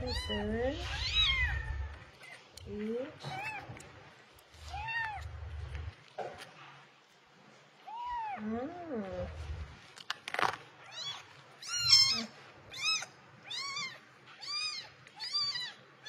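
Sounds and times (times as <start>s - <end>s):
kitten mewing: 10.9s - 15.8s.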